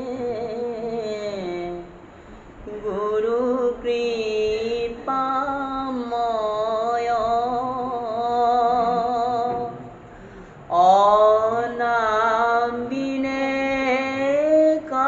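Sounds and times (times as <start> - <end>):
man chanting slow melody: 2.6 - 10.0, 10.6 - 15.0.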